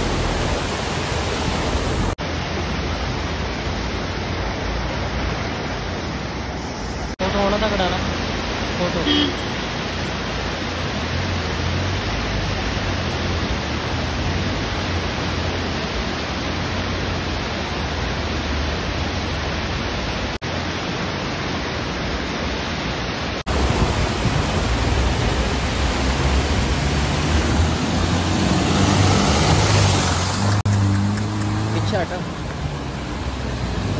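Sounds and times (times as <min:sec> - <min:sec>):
river water rushing over rocks: 0:00.0 - 0:33.9
engines running low: 0:23.5 - 0:33.9.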